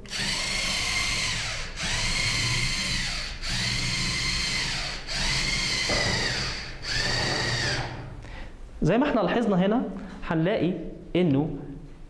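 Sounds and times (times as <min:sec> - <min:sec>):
servo motors whining: 0:00.0 - 0:08.2.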